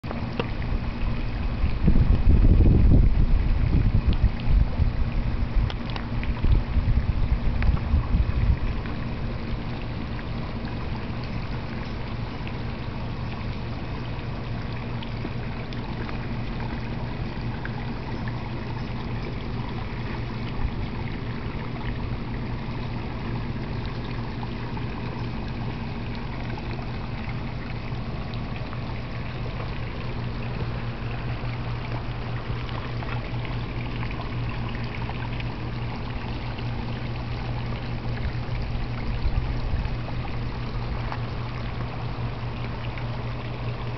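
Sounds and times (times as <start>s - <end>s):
steady low hum: 0.0s - 43.9s
water pouring into a pond: 0.1s - 43.9s.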